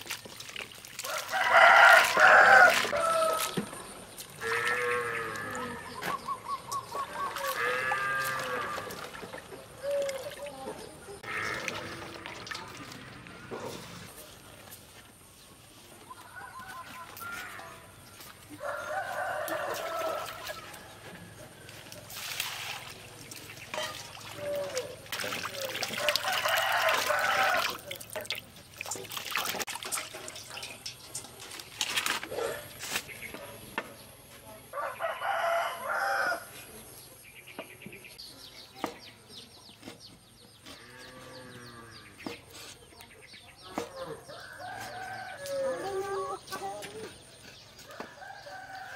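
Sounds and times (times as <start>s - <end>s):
rooster crowing: 1.0s - 3.5s, 18.6s - 20.8s, 26.0s - 27.8s, 34.8s - 36.5s
water poured into metal bowl: 22.1s - 32.2s.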